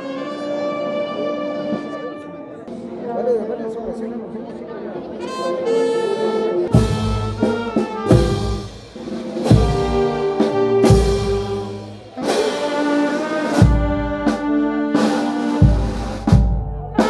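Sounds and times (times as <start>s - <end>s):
brass band playing slow melody: 0.0s - 3.0s, 5.1s - 17.0s
bass drum and cymbals: 6.8s - 13.0s, 13.6s - 17.0s.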